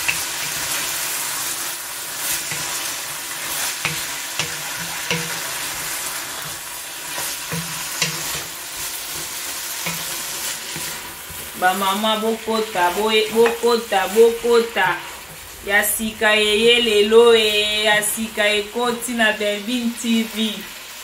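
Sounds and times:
sauce sizzling in a pot: 0.0s - 21.0s
wooden spoon knocking pot: 3.8s - 5.6s, 7.5s - 8.5s, 9.8s - 10.2s.

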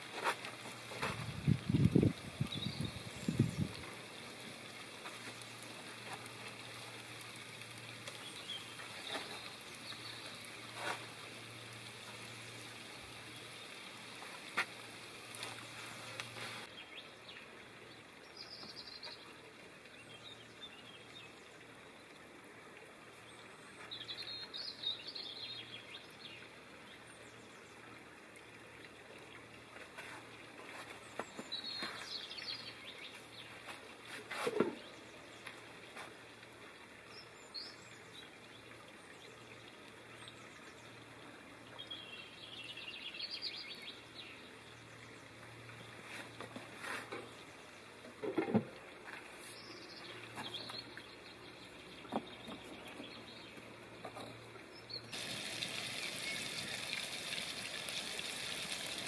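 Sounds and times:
birds chirping: 1.9s - 4.5s, 7.9s - 13.8s, 49.4s - 59.0s
pan sizzling: 2.3s - 16.7s, 55.1s - 59.0s.

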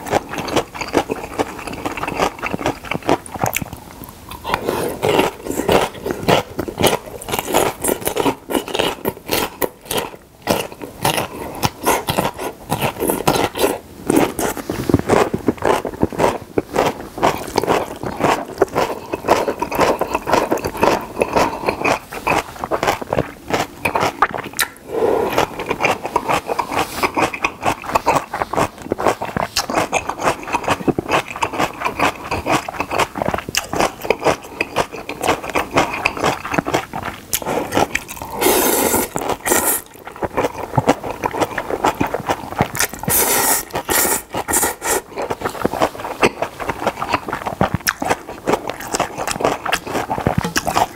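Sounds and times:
wet chewing and lip-smacking: 0.0s - 50.9s
noodle slurps: 37.4s - 48.2s.

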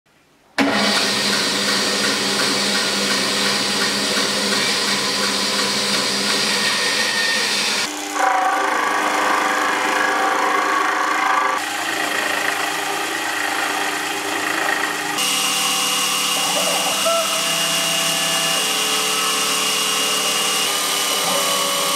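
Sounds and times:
band saw cutting wood: 0.6s - 21.9s
milling machine cutting wood: 0.6s - 21.9s.

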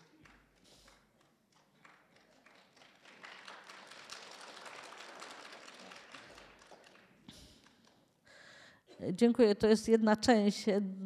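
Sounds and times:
faint audience applause: 0.0s - 8.1s.

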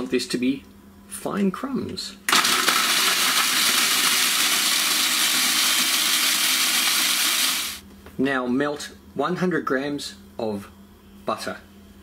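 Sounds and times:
food processor chopping: 2.3s - 7.8s.

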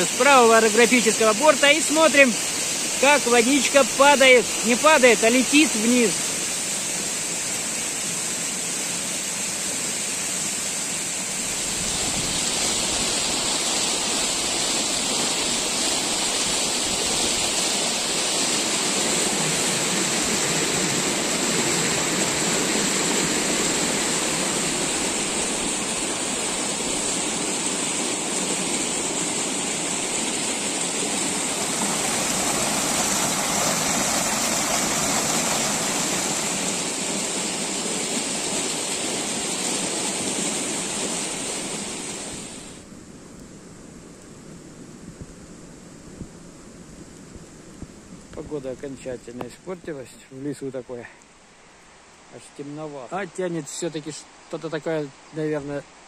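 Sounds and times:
waterfall rushing: 0.0s - 42.9s.

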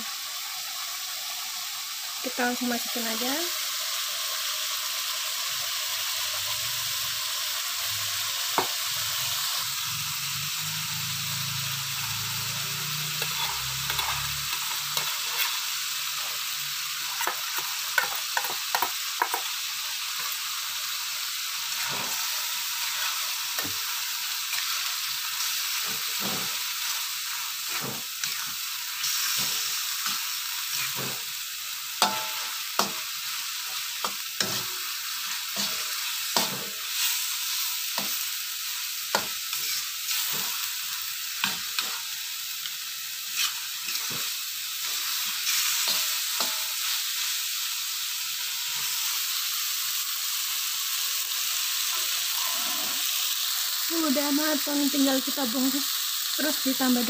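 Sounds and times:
sauce sizzling in a wok: 0.0s - 57.0s
metal utensils scraping a wok: 10.8s - 16.4s, 21.7s - 31.4s, 32.0s - 38.2s, 39.1s - 42.3s, 43.2s - 47.2s, 51.9s - 53.3s.

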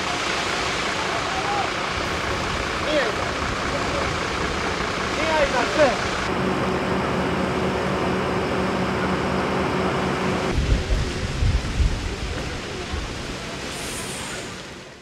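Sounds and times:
motor hum: 0.0s - 10.6s
rumbling gusts from flames: 0.0s - 14.9s
wildfire roaring: 0.0s - 15.0s.

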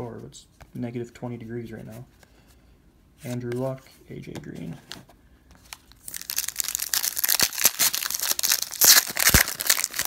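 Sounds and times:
foil wrapper crinkling: 5.7s - 10.0s.

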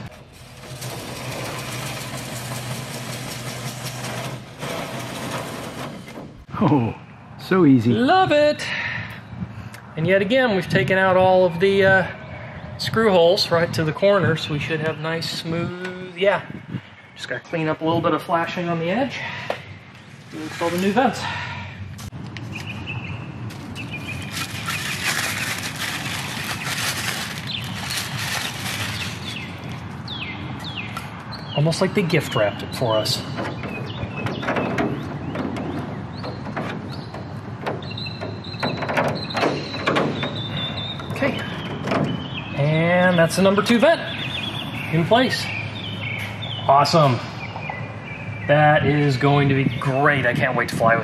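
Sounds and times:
paper wrapping crinkling: 24.0s - 29.8s.

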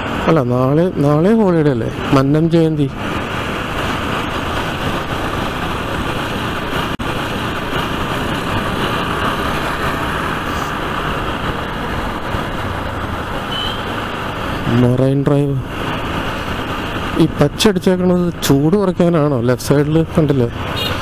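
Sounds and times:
wind and road noise: 0.0s - 21.0s
motorcycle engine running: 1.1s - 14.9s.

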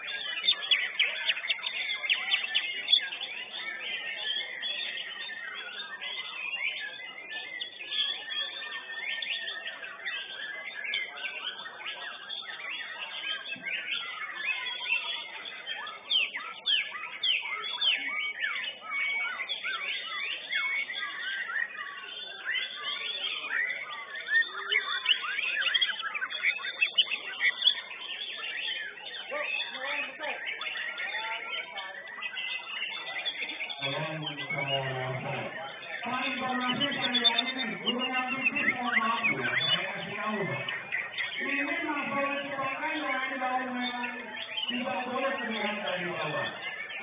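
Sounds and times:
bird singing whistles and trills: 0.0s - 47.0s.

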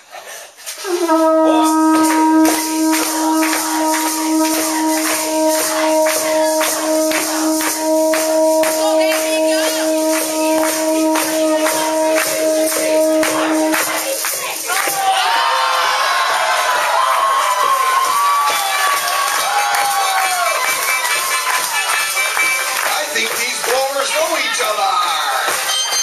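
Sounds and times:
conch shell trumpet note: 0.8s - 14.4s
crowd clapping along: 0.9s - 26.0s.

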